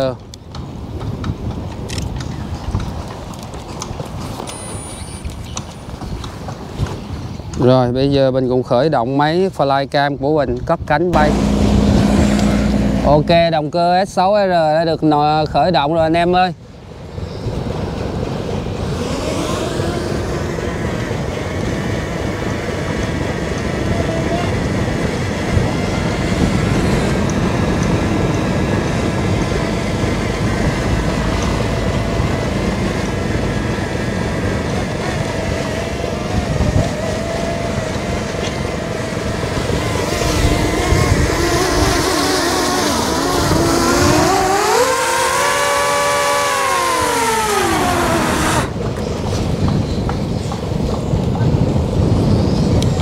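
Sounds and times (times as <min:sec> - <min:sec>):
diesel engine rumbling: 0:10.9 - 0:14.4, 0:19.7 - 0:49.3
pitched whine: 0:11.1 - 0:13.8, 0:25.7 - 0:48.9.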